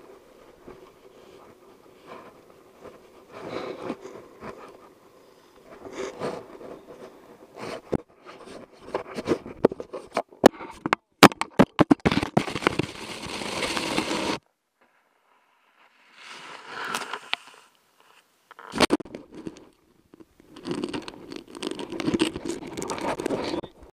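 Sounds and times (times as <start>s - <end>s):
jacket fabric rubbing on camera: 12.4s - 14.4s, 15.6s - 19.0s
snowboard sliding over snow: 12.4s - 14.4s, 15.4s - 17.7s.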